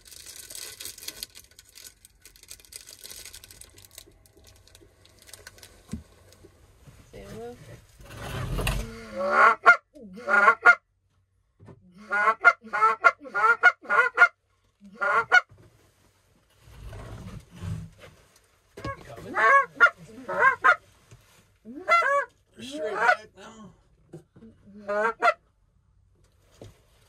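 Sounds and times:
goose call honks and clucks: 0:08.9 - 0:10.8, 0:12.0 - 0:15.5, 0:18.8 - 0:20.8, 0:21.7 - 0:23.4, 0:24.6 - 0:25.4.

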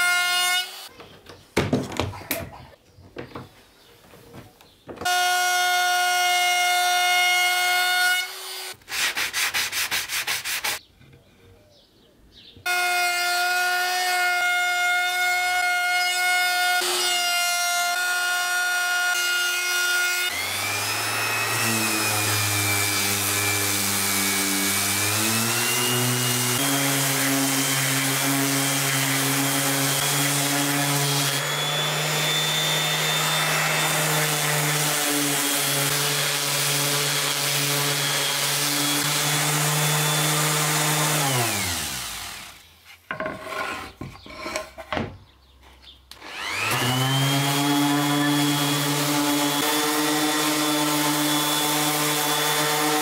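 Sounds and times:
orbit sander on wood: 0:16.8 - 0:43.9, 0:46.2 - 0:53.0.

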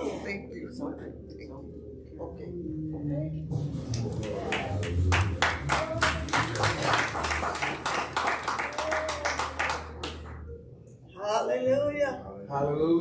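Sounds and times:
congregation clapping: 0:04.0 - 0:10.4.

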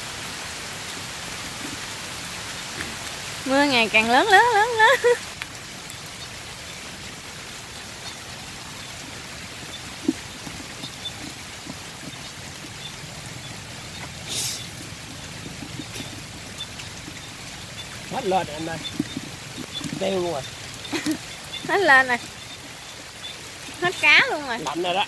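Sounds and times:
heavy rain: 0:00.0 - 0:25.0
water running and trickling: 0:00.0 - 0:25.0
louder hiss: 0:14.2 - 0:14.7.

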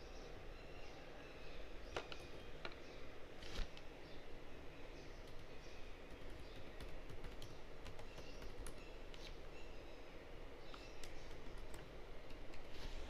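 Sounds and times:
low background hum: 0:00.0 - 0:13.0
computer keyboard typing: 0:05.2 - 0:08.8, 0:10.7 - 0:12.7.

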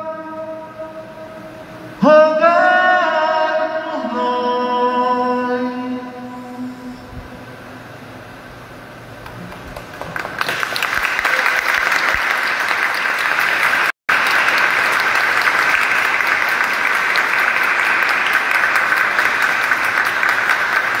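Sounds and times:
congregation applauding: 0:09.2 - 0:21.0.

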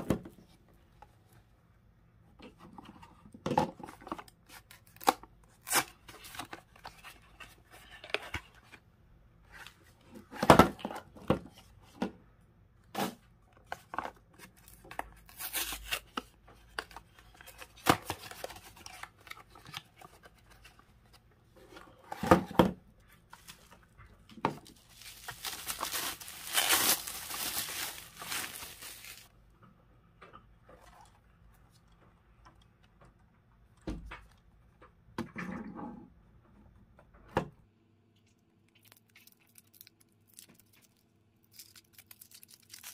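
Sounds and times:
packaging rustle: 0:24.6 - 0:29.3
cardboard tearing: 0:24.9 - 0:29.3.

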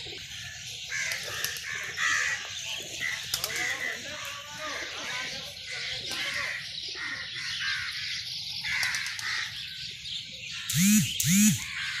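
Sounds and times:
birds chattering: 0:00.0 - 0:12.0
crow cawing: 0:00.4 - 0:05.2, 0:08.6 - 0:09.5, 0:11.6 - 0:12.0.

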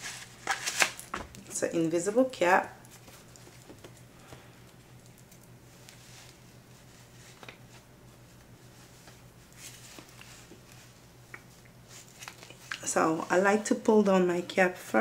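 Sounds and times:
low steady hum: 0:00.0 - 0:15.0
wig cap rustling: 0:04.7 - 0:13.0.

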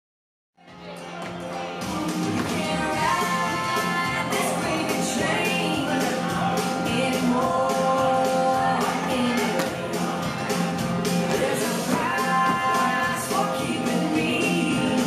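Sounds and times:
country song: 0:00.8 - 0:15.0
steady drum beat: 0:08.4 - 0:15.0.

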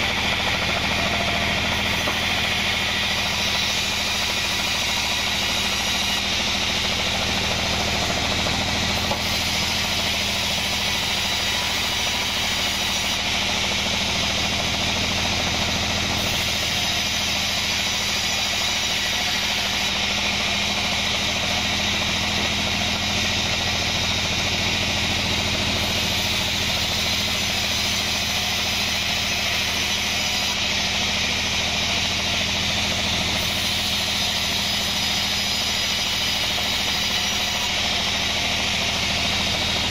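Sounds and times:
band saw machine hum: 0:00.0 - 0:39.9
saw blade hissing through wood: 0:00.0 - 0:39.9.

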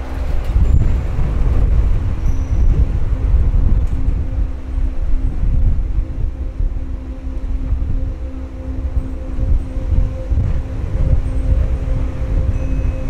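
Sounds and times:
faint steady hum: 0:00.0 - 0:13.0
jet engines rumbling: 0:00.0 - 0:13.0.

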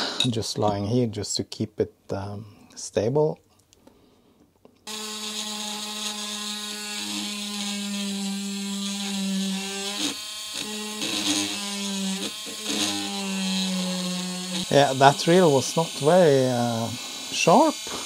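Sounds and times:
rotary tool drilling into plastic: 0:04.9 - 0:18.0.

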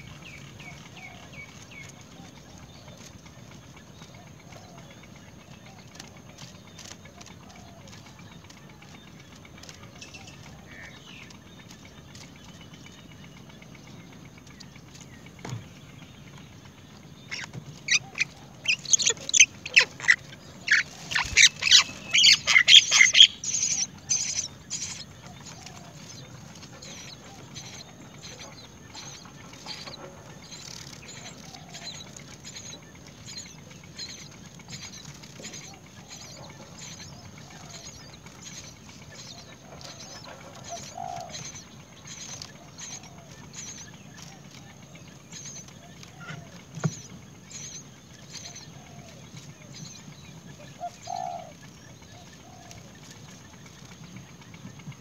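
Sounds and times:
nestlings chirping shrilly: 0:17.3 - 0:26.2, 0:26.8 - 0:43.9.

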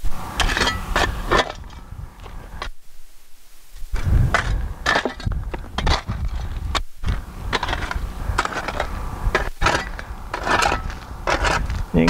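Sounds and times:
shovel scraping through crushed rock: 0:00.2 - 0:02.7, 0:03.9 - 0:12.0.

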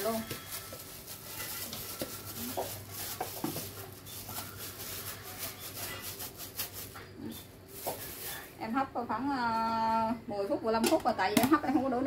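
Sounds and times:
plastic gloves crinkling: 0:00.0 - 0:08.7.

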